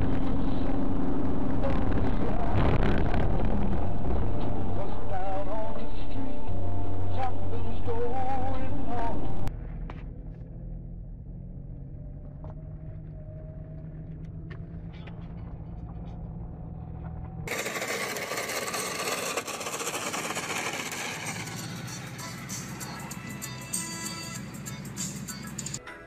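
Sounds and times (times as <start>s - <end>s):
road and wind rushing: 0.0s - 4.8s
car engine drone from inside: 0.0s - 25.8s.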